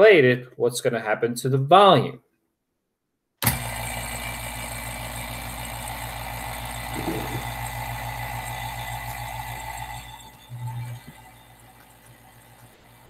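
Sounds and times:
vacuum pump humming and hissing: 0:03.4 - 0:13.0.

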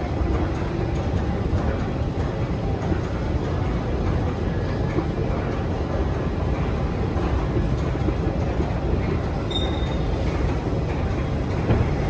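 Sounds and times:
metro station low rumble: 0:00.0 - 0:12.0
running escalator: 0:00.0 - 0:12.0
brief high squeak: 0:09.5 - 0:10.0.

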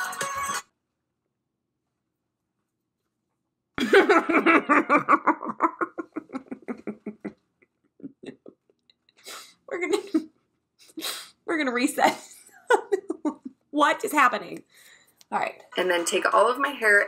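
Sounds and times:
woman laughing hard: 0:03.8 - 0:07.4, 0:12.2 - 0:13.5.

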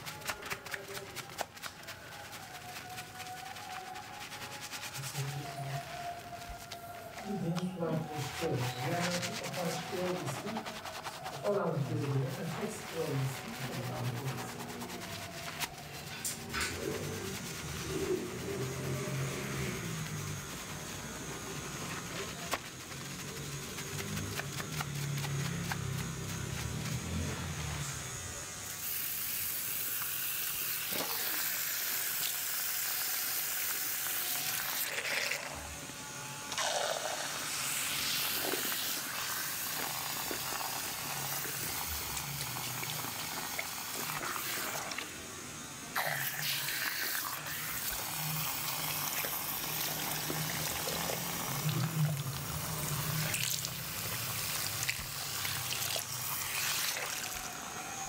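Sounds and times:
water spraying into sink: 0:28.8 - 0:35.6, 0:36.5 - 0:45.2, 0:45.9 - 0:57.9.

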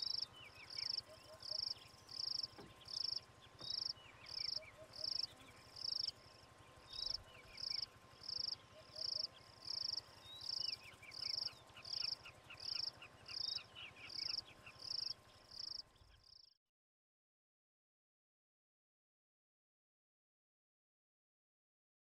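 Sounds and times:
high buzzy insect chirps: 0:00.0 - 0:16.4.

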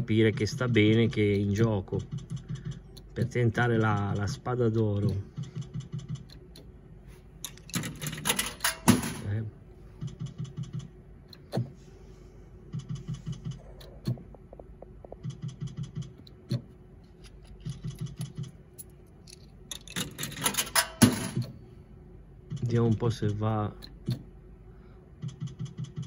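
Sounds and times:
faint electrical hum: 0:00.0 - 0:26.0
slot machine clicks and ticks: 0:00.2 - 0:06.7, 0:07.4 - 0:09.4, 0:19.7 - 0:21.4.

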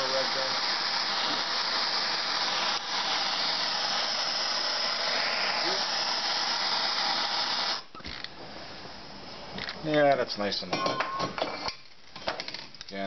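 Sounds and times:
gas torch hissing: 0:00.0 - 0:09.2.

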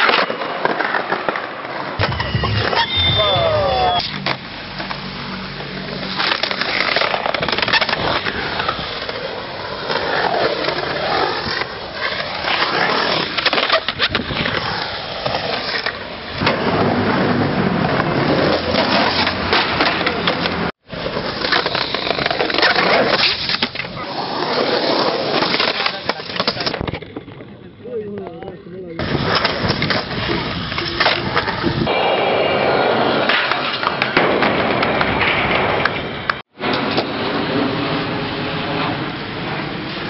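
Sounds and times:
skateboard wheels rolling on concrete: 0:00.0 - 0:40.0
skateboard clacks: 0:25.1 - 0:32.0.

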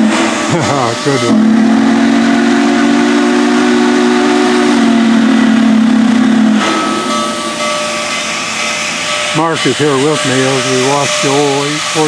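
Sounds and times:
steam whistle: 0:00.0 - 0:07.7, 0:09.5 - 0:12.0
steam hissing from cylinder cocks: 0:00.0 - 0:12.0.

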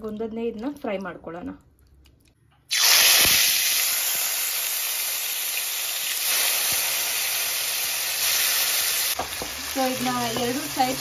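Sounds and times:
chicken sizzling in hot oil: 0:02.7 - 0:11.0.

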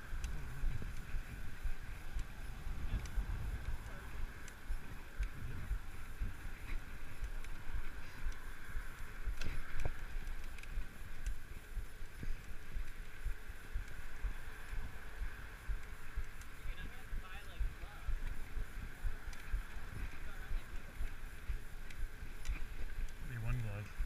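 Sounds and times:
tyres rolling on pavement: 0:00.0 - 0:24.0
wind buffeting microphone: 0:00.0 - 0:24.0
sharp clicks: 0:02.9 - 0:14.8, 0:18.1 - 0:19.8.

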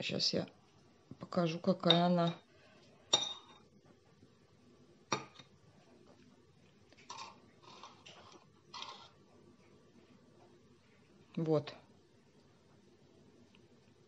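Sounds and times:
metal spoon clinking: 0:01.8 - 0:02.4, 0:03.1 - 0:03.6
spoon scraping plastic cup: 0:07.0 - 0:09.2.

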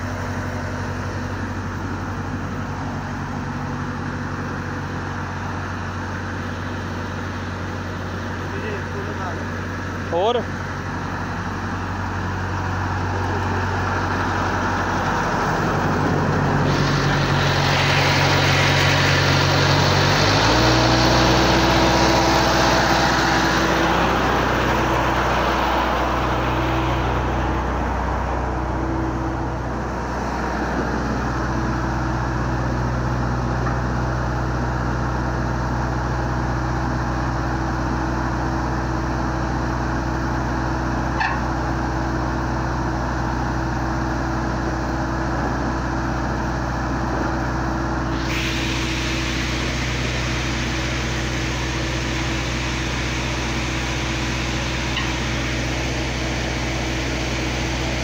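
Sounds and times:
diesel truck engine running: 0:00.0 - 0:58.0
hiss: 0:15.0 - 0:27.9, 0:48.0 - 0:58.0.

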